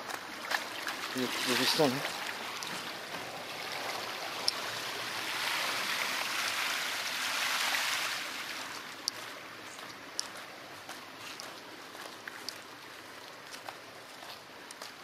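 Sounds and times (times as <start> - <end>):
shallow water rushing and splashing: 0.0 - 10.6.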